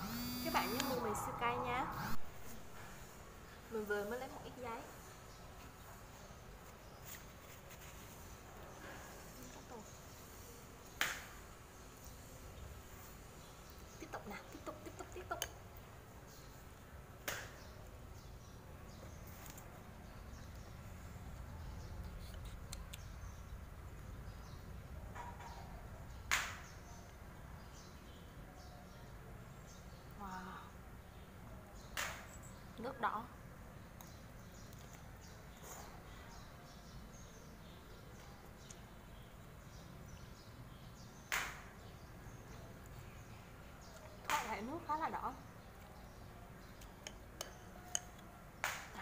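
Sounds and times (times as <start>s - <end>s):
chopsticks clicking on bowl: 46.8s - 48.3s.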